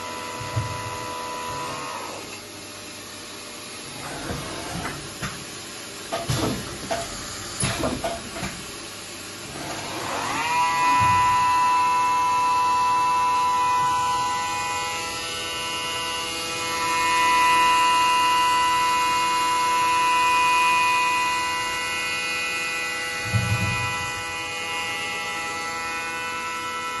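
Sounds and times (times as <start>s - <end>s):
machine spindle motor whine: 0.0s - 2.4s, 9.4s - 27.0s.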